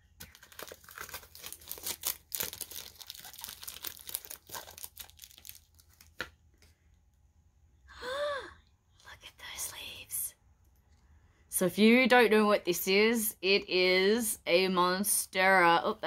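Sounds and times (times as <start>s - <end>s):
packaging crinkling and tearing: 0.0s - 6.3s.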